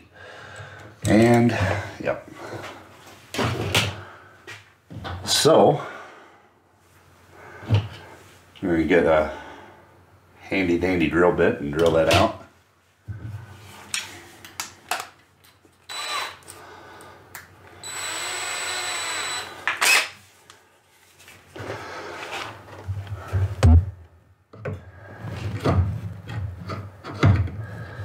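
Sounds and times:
cordless drill whining: 0:15.9 - 0:16.6, 0:17.8 - 0:20.2.

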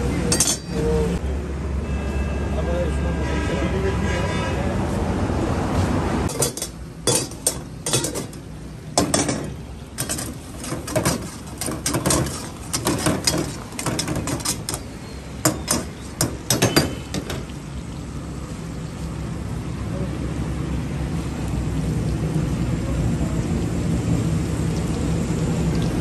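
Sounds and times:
metal ladle scraping a steel pan: 0:06.3 - 0:08.4, 0:09.0 - 0:17.2
meat frying in hot oil: 0:06.3 - 0:26.0.

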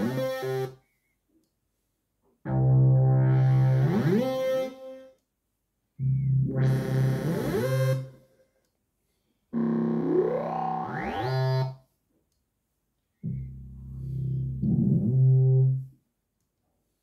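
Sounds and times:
synthesizer bass sliding upward: 0:09.6 - 0:11.8, 0:13.2 - 0:15.9.

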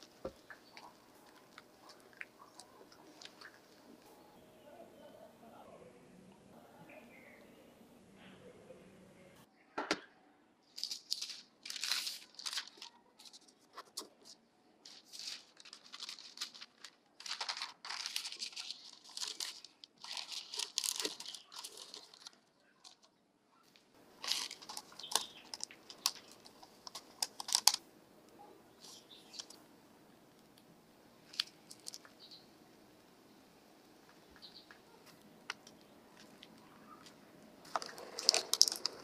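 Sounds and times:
baking paper crinkling: 0:00.0 - 0:04.1, 0:10.7 - 0:27.8, 0:31.2 - 0:32.2, 0:35.0 - 0:39.0.

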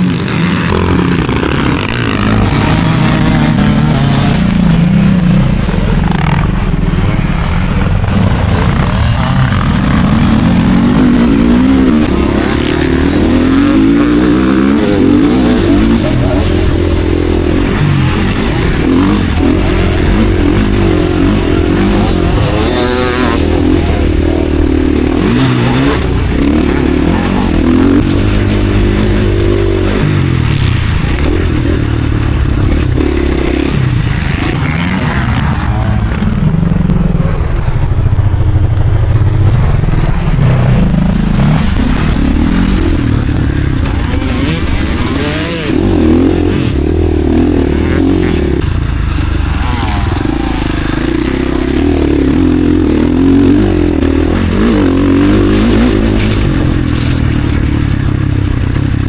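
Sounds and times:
motocross bike engine revving: 0:00.0 - 0:37.4, 0:40.1 - 0:59.0.

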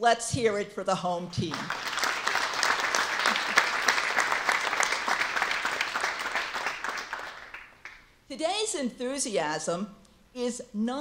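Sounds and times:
audience applauding: 0:01.6 - 0:08.0.

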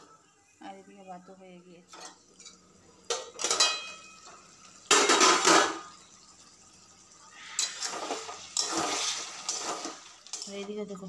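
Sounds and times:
steel lid clattering: 0:03.1 - 0:04.1, 0:04.9 - 0:05.9
metal spatula scraping wok: 0:07.3 - 0:10.9.

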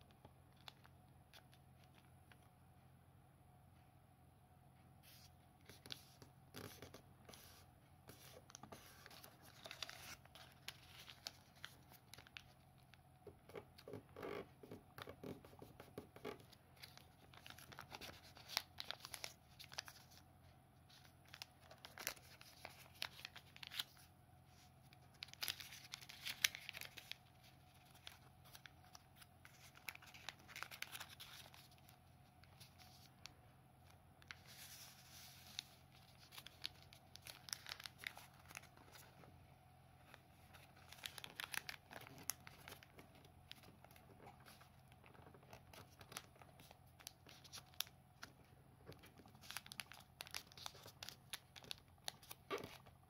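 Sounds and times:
paper rustling and crinkling: 0:05.1 - 0:12.9, 0:16.2 - 0:20.2, 0:20.9 - 0:33.2, 0:34.2 - 0:39.2, 0:40.0 - 0:53.0
paper crackling: 0:05.1 - 0:13.0, 0:16.2 - 0:20.2, 0:20.9 - 0:24.1, 0:24.9 - 0:33.2, 0:34.2 - 0:39.2, 0:40.0 - 0:52.9.

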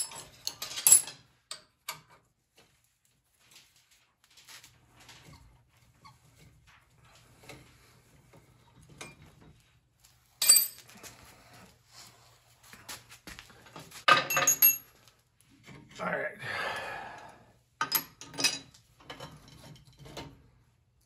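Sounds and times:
metal tools clicking and tapping: 0:14.1 - 0:14.8.

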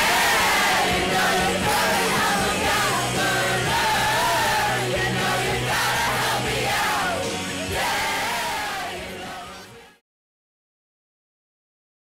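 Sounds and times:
steady bass line: 0:00.0 - 0:09.7
person singing: 0:00.8 - 0:10.0.

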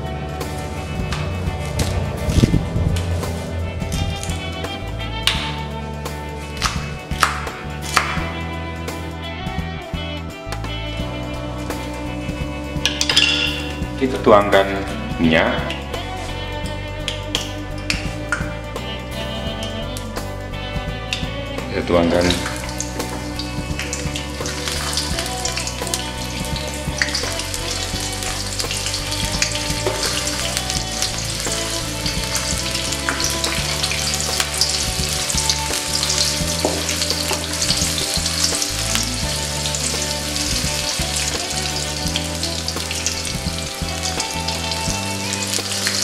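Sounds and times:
shallots sizzling in hot oil: 0:21.1 - 0:46.0.

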